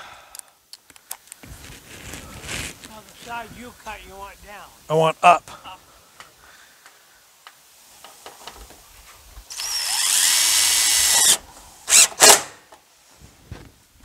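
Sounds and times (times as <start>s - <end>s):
cordless drill whining: 9.5s - 12.5s.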